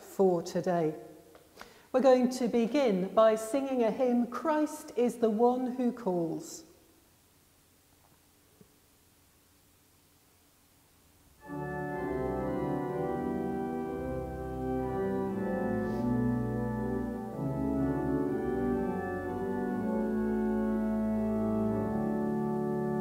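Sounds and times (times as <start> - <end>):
organ playing slow chords: 11.4 - 23.0.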